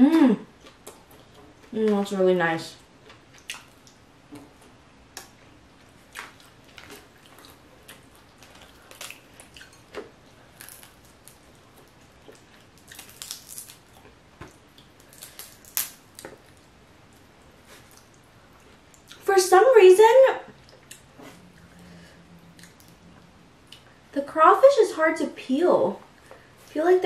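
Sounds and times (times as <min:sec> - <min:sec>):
crawfish shells cracking: 0:06.2 - 0:16.6.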